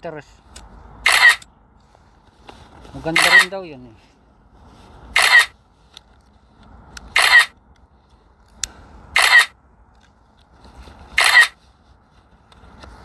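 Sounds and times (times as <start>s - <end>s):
camera shutter sound effect: 1.0s - 1.4s, 3.1s - 3.5s, 5.2s - 5.6s, 7.1s - 7.6s, 9.2s - 9.6s, 11.2s - 11.6s.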